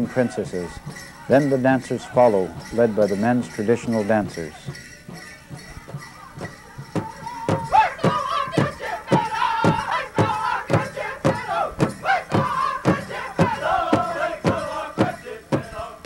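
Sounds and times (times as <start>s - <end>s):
big drum beating: 4.2s - 15.7s
group singing in high voices: 7.6s - 16.0s.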